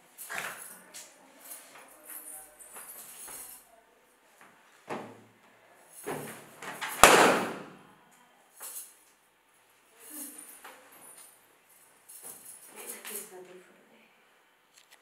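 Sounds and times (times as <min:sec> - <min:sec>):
balloon bursting: 0:07.0 - 0:07.8.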